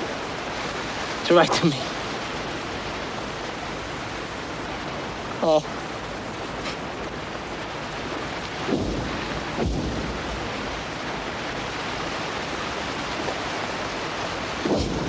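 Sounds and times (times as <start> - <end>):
steady background noise: 0.0 - 15.0
low rumbles: 4.4 - 13.2.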